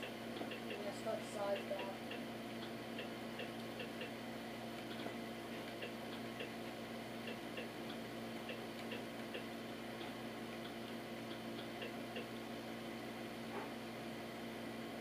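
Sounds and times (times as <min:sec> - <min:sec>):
low electrical hum: 0:00.0 - 0:15.0
soft menu scrolling ticks: 0:01.5 - 0:04.2.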